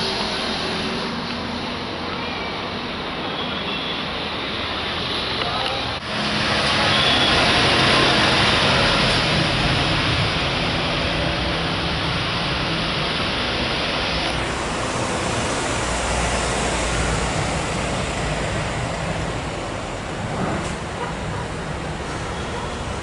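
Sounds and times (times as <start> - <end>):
jet engines roaring: 4.1 - 20.9.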